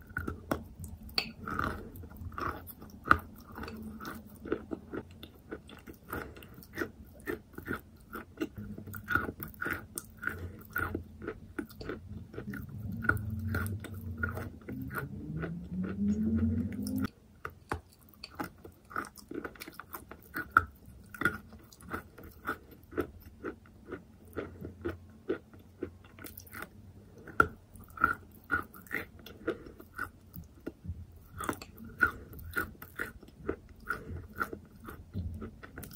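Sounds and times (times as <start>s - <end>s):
chewing chalk: 0.0s - 17.1s, 17.7s - 35.9s
low hum: 12.0s - 17.1s.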